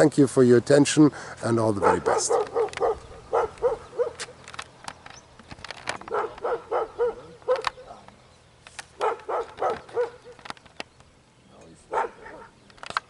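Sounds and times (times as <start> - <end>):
dog barking: 1.8 - 4.3, 6.0 - 8.0, 9.0 - 10.4, 11.9 - 12.6.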